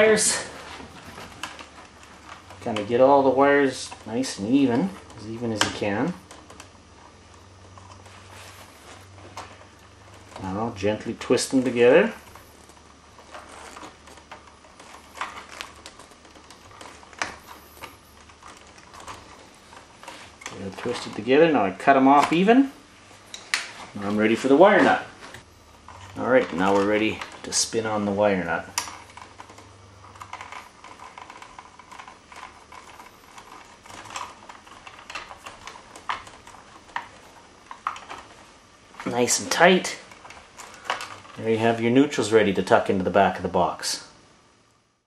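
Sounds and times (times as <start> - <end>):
plastic wire nut clicking and scraping: 25.8 - 38.4, 39.0 - 41.5.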